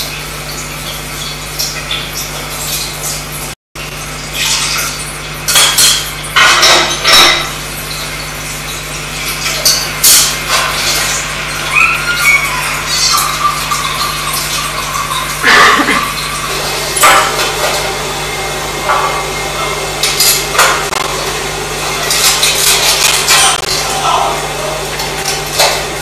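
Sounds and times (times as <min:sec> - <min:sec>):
kitchen knocks and clatter: 0:05.5 - 0:07.6.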